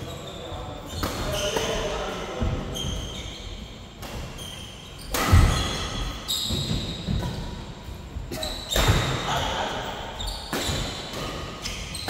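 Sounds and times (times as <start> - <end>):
shoes squeaking on court: 0.0 - 12.0
rackets hitting shuttlecock: 4.0 - 4.4, 5.0 - 7.4, 8.4 - 9.4, 10.4 - 12.0.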